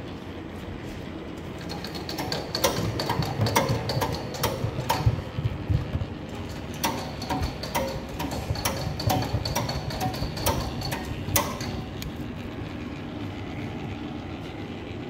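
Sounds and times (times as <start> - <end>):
machine rumbling hum: 0.0 - 15.0
sharp machine clicks: 1.6 - 5.7, 6.4 - 12.2.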